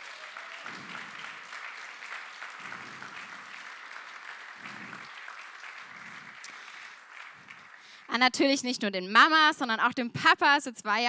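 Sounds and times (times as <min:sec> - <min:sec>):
congregation applauding: 0:00.0 - 0:08.6.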